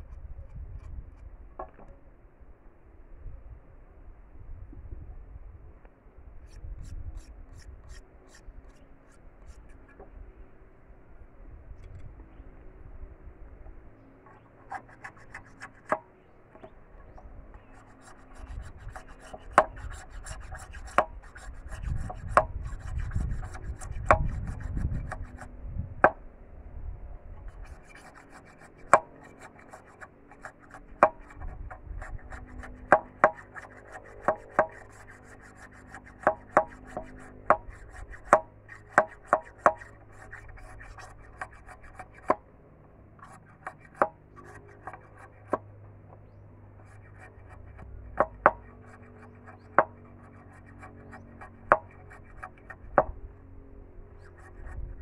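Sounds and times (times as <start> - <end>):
machete scraping bamboo: 6.4 - 10.0, 14.3 - 16.0, 16.6 - 26.2, 27.4 - 42.4, 43.2 - 53.2.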